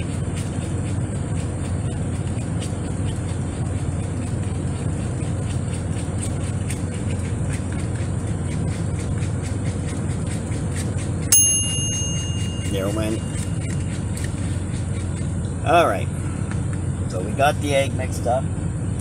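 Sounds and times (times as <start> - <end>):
air fryer chime: 11.3 - 13.7.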